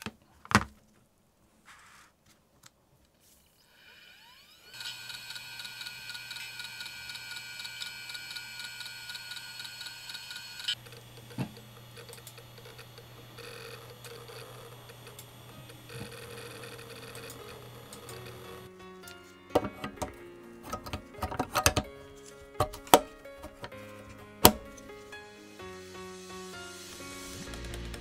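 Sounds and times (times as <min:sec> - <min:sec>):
hard drive whine: 0:03.5 - 0:18.7
hard drive ticking: 0:04.7 - 0:18.7.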